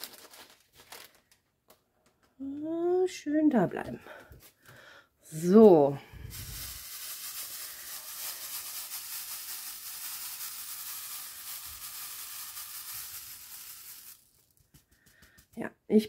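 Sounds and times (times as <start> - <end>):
small beads rattling in a tray: 6.2 - 15.6.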